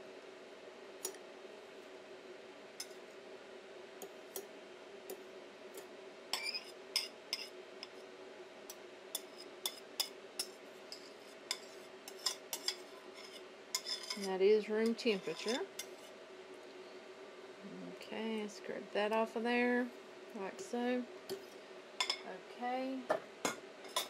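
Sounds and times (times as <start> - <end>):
butter scraped into metal bowl: 10.9 - 16.2.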